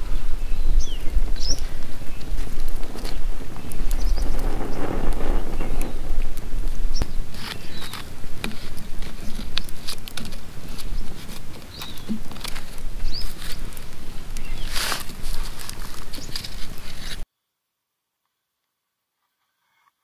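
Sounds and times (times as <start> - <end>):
low rumble: 0.0 - 7.4
campfire crackling: 0.0 - 17.2
wood snaps and pops: 2.2 - 17.2.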